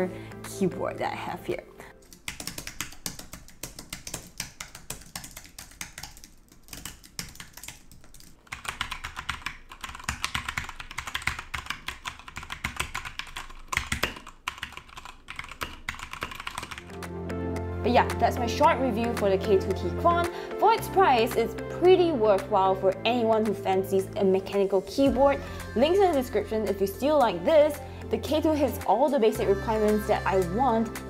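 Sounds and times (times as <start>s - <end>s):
mechanical keyboard typing: 2.0s - 17.0s.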